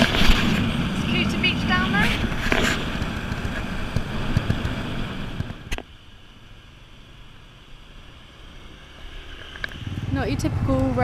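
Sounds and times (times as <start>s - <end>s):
wind buffeting microphone: 0.0s - 5.8s
scooter road noise: 0.0s - 11.0s.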